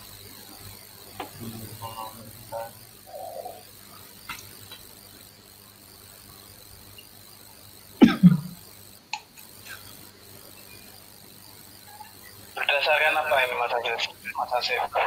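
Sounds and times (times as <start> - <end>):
person coughing: 8.0 - 8.6.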